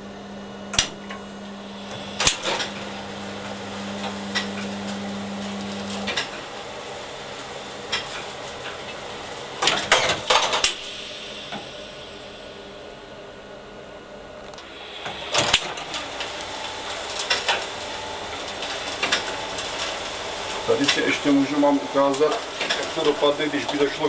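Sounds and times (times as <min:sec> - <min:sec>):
electric motor hum: 0:00.1 - 0:07.0, 0:14.4 - 0:24.0.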